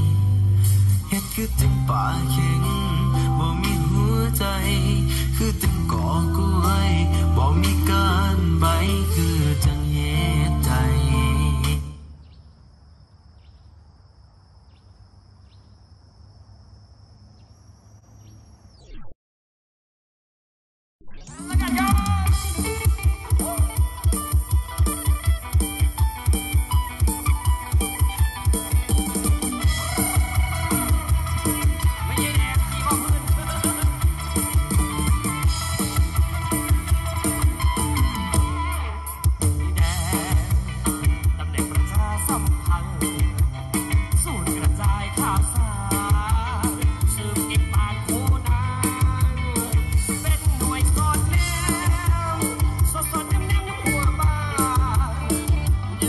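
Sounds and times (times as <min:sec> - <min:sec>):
song with drums and guitar: 0:00.0 - 0:11.9, 0:21.2 - 0:56.0
high insect drone: 0:12.0 - 0:18.8.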